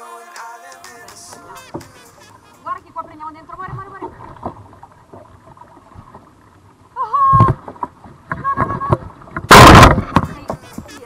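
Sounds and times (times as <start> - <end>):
paddle splashing water: 1.4 - 11.0.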